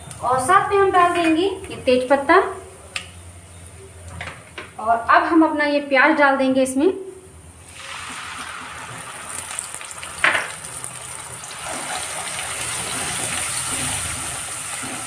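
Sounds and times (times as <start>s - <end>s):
onion sizzling in hot oil: 7.6s - 15.0s.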